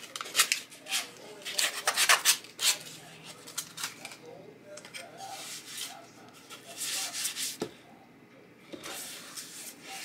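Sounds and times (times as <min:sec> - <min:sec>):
hands rubbing paper: 0:05.2 - 0:07.6, 0:08.9 - 0:10.0.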